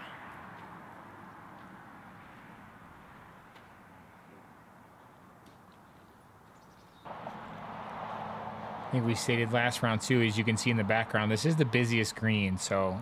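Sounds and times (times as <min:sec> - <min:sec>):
outdoor park ambience: 0:00.0 - 0:13.0.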